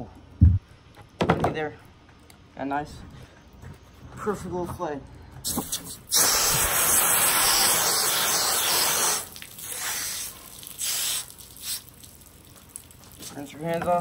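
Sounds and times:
water spraying from hose: 5.5s - 14.0s.

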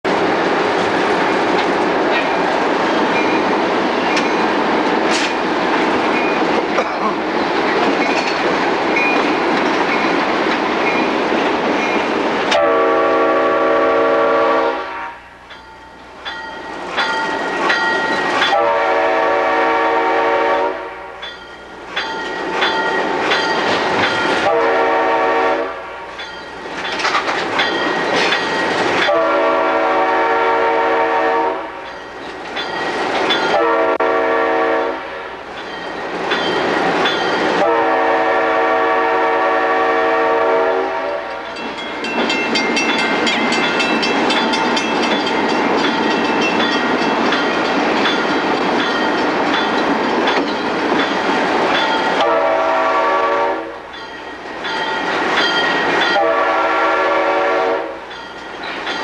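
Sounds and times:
locomotive rumble and rattle: 0.1s - 12.6s, 26.2s - 29.2s, 41.2s - 52.2s
locomotive air horn blasts: 12.5s - 15.4s, 18.5s - 21.2s, 24.4s - 26.2s, 29.0s - 31.8s, 33.5s - 35.4s, 37.6s - 41.5s, 52.2s - 53.8s, 56.1s - 58.1s.

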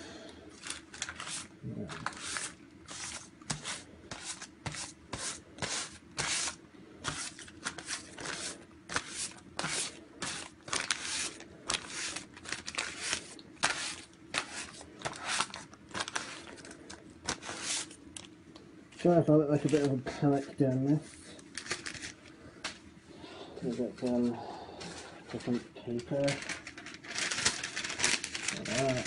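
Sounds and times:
gloved hand rubbing surface: 1.2s - 12.3s, 17.3s - 18.0s.

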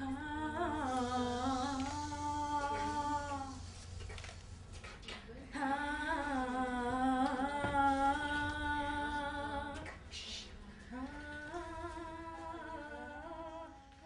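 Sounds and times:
woman humming: 0.0s - 3.8s, 10.9s - 14.0s
breathy hiss: 0.0s - 4.6s.

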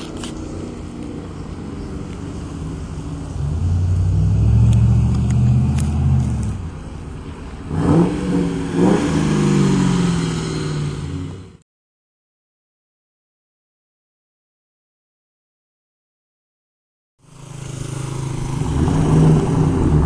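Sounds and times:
engine revving: 0.0s - 6.8s, 7.7s - 11.6s, 17.2s - 20.0s
car engine accelerating past: 0.5s - 6.7s.

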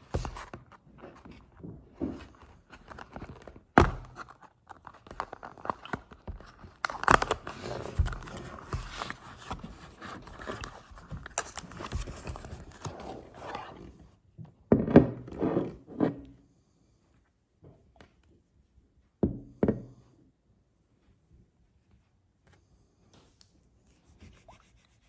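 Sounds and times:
cardboard sliding and rustling: 7.0s - 14.1s.

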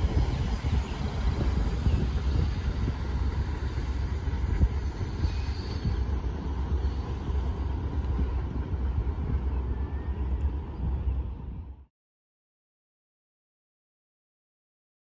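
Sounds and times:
freight train rumbling: 0.0s - 11.9s.

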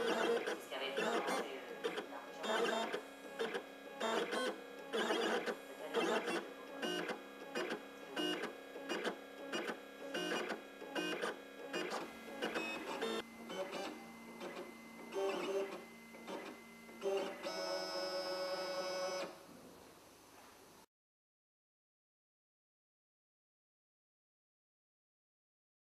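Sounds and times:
engraving machine motors whirring: 0.0s - 19.3s.

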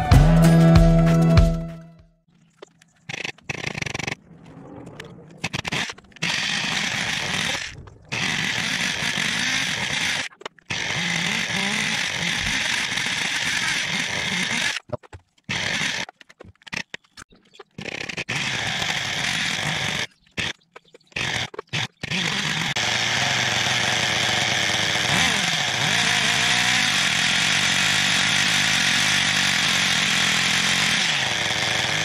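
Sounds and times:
model truck engine buzzing: 5.4s - 14.9s, 15.5s - 16.9s, 17.8s - 20.6s, 21.2s - 32.0s.

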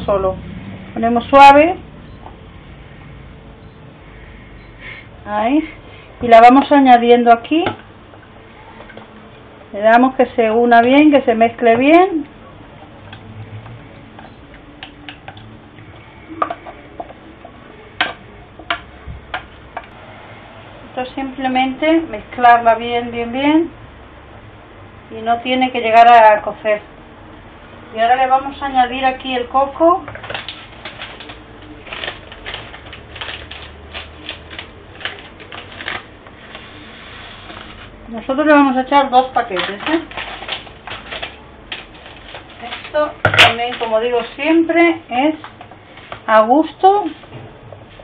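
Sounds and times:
plastic packet crinkling: 30.1s - 38.0s, 39.2s - 44.4s.

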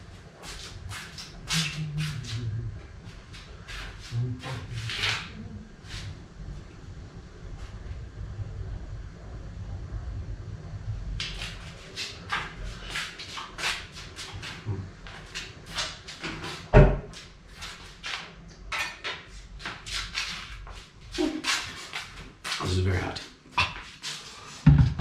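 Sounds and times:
heavy thump: 24.6s - 25.0s.

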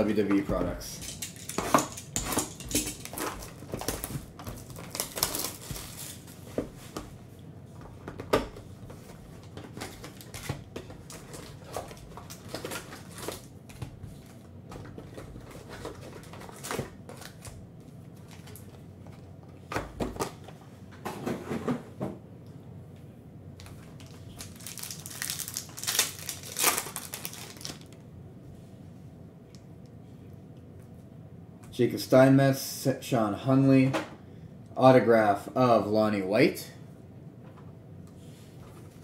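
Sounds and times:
foil packs crinkling: 2.9s - 6.6s, 9.5s - 13.6s, 14.9s - 17.5s, 23.6s - 28.0s.

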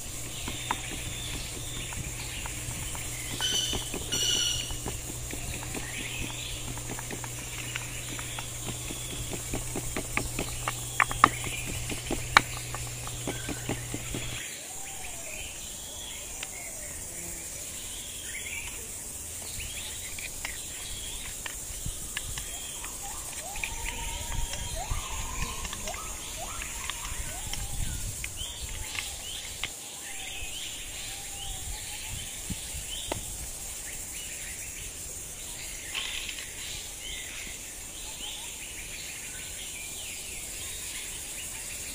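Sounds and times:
wooden pestle pounding in bowl: 0.0s - 14.4s
birds chirping: 0.0s - 41.9s
insect noise: 0.0s - 41.9s.

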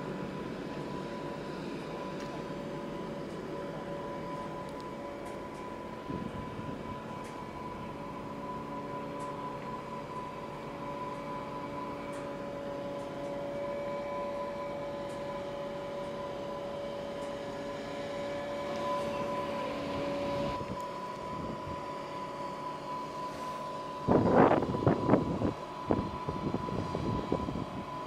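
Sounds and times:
diesel engine running: 0.0s - 28.0s
high whine: 0.0s - 28.0s.

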